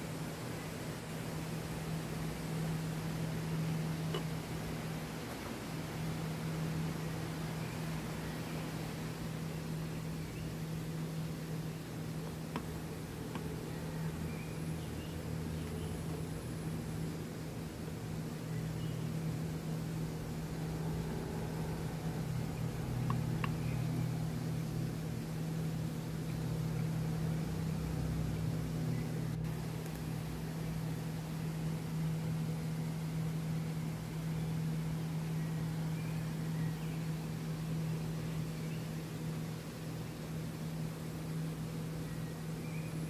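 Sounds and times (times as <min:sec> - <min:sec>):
faint bird chirps: 0:09.4 - 0:11.9, 0:13.4 - 0:16.2, 0:18.4 - 0:19.2, 0:22.5 - 0:24.2, 0:33.8 - 0:39.0, 0:41.9 - 0:43.0.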